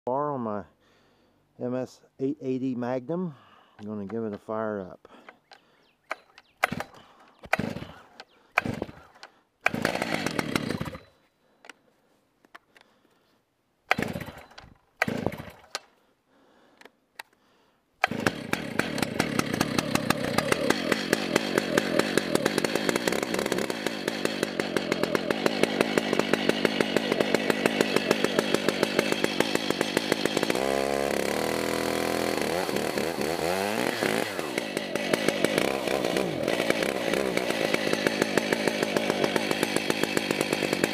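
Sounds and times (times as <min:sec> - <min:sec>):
starter cord pulls: 0:05.2 - 0:11.8, 0:18.0 - 0:30.6
chainsaw engine running and revving: 0:07.5 - 0:09.1, 0:09.7 - 0:11.1, 0:13.9 - 0:15.5, 0:18.0 - 0:40.9.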